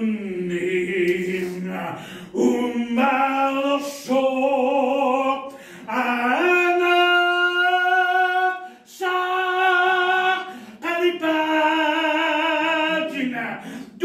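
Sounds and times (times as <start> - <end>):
man singing unaccompanied: 0.0 - 14.0.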